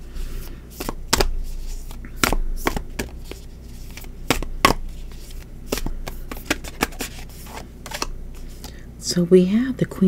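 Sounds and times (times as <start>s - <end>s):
cards being shuffled: 0.7s - 8.8s.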